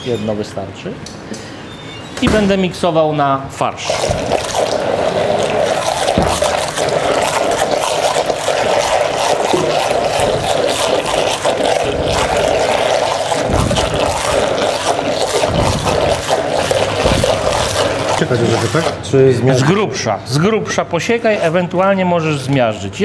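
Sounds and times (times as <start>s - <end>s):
immersion blender running in a pan: 3.9s - 19.0s.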